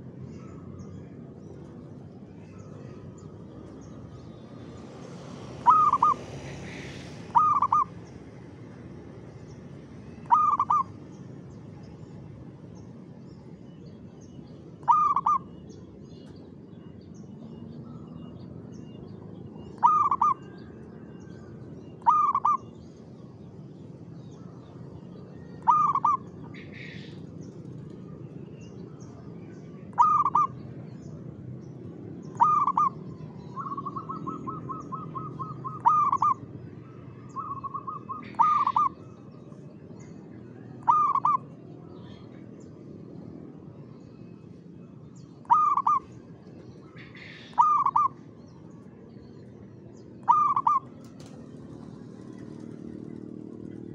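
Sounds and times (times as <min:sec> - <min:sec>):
rapid repeated bird notes: 0:00.0 - 0:20.9, 0:21.8 - 0:53.9
dove cooing: 0:05.6 - 0:07.9, 0:10.2 - 0:11.0, 0:14.8 - 0:15.5, 0:19.7 - 0:20.6, 0:22.0 - 0:22.7, 0:25.6 - 0:27.1, 0:29.9 - 0:30.6, 0:32.3 - 0:36.4, 0:37.4 - 0:39.1, 0:40.7 - 0:41.5, 0:45.4 - 0:46.1, 0:47.2 - 0:48.2, 0:50.2 - 0:53.3.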